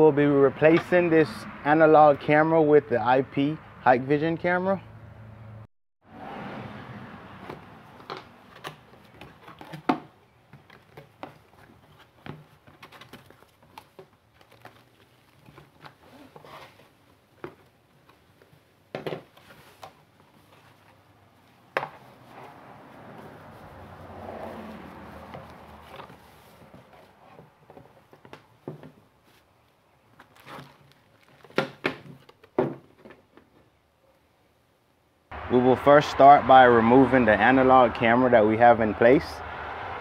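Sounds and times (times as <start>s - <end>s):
packing being handled: 8.4s - 18.6s, 30.1s - 32.5s
plastic bag rustling: 30.2s - 31.6s.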